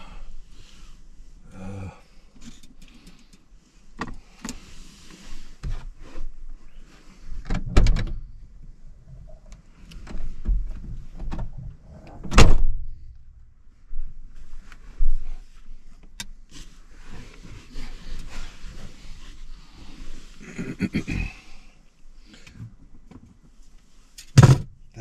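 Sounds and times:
loud thumps: 24.4s - 24.7s
van door knocks and clunks: 24.4s - 24.8s.

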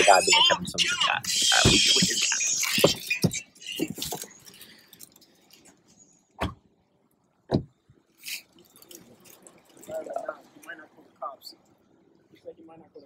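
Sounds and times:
dull thumps: 7.5s - 7.7s.

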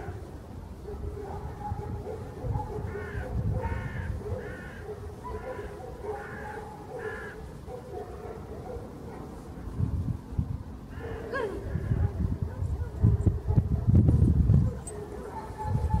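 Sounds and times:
crow cawing: 2.9s - 7.4s, 10.9s - 12.0s.

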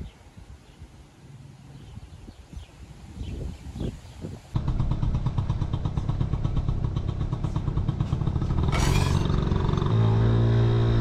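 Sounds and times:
small two-stroke scooter engine running: 4.6s - 10.4s.

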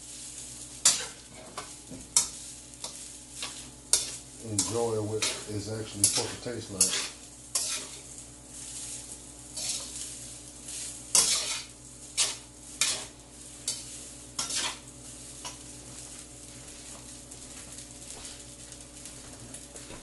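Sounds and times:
rice sizzling: 0.0s - 20.0s
metal spatula scraping wok: 0.8s - 15.6s.

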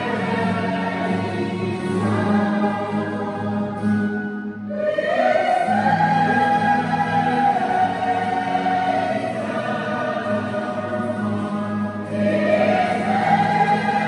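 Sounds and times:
choir singing held chords: 0.0s - 14.0s.

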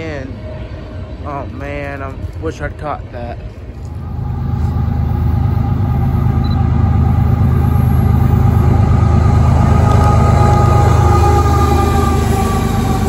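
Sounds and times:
faint steady whine: 0.0s - 9.8s
locomotive engine running: 0.0s - 13.0s.

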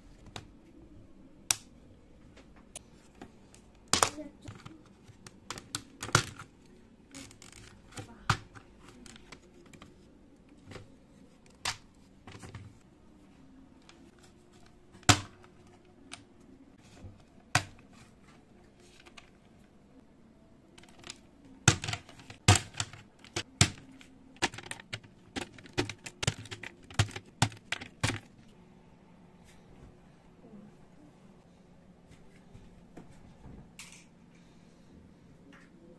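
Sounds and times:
plastic keycaps clicking: 20.8s - 28.3s.

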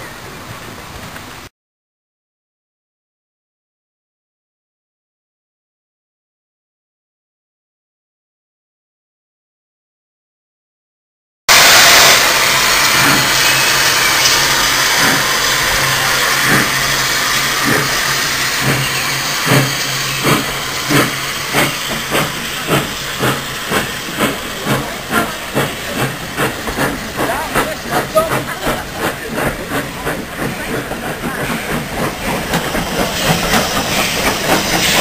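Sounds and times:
steam hissing: 11.5s - 35.0s
steam locomotive chuffing: 11.5s - 35.0s.

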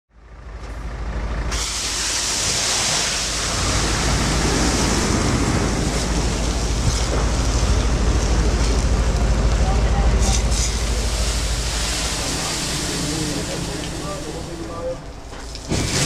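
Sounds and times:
low rumble: 0.1s - 16.0s
fire extinguisher hissing: 1.5s - 5.0s, 10.3s - 14.7s.

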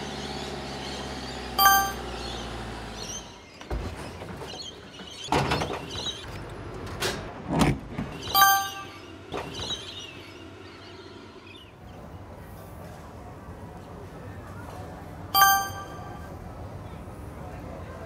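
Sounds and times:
van engine: 0.0s - 12.9s
short bright chime: 1.6s - 2.1s, 8.4s - 9.0s, 15.4s - 16.3s.

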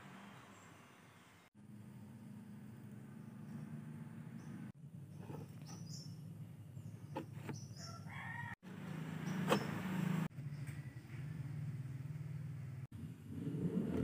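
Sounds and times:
rooster crowing: 7.8s - 8.7s.

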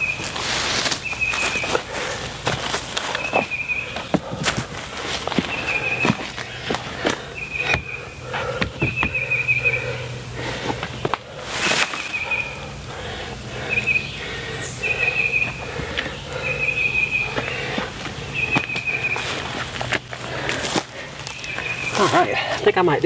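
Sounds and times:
footsteps on forest floor: 0.0s - 9.3s, 10.4s - 12.6s, 17.1s - 22.8s
bird trilling: 1.0s - 2.1s, 3.1s - 4.4s, 5.4s - 19.6s, 21.3s - 22.4s
wooden logs knocking: 2.4s - 9.3s.

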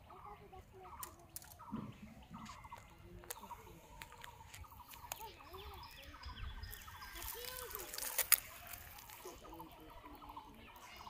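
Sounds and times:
low arching bird calls: 0.0s - 11.0s.

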